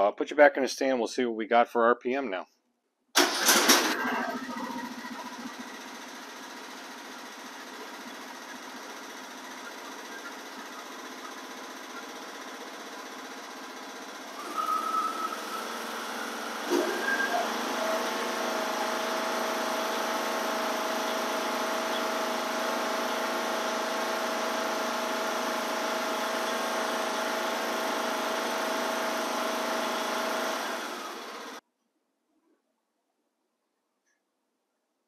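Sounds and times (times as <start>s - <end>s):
riding mower engine running: 3.2s - 31.6s.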